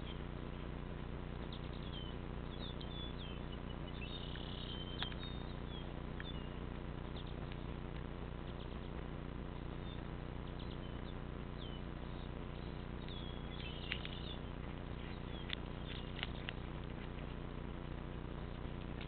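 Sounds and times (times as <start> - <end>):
sharp clicks: 4.3 - 5.4, 13.0 - 14.4, 15.2 - 17.2.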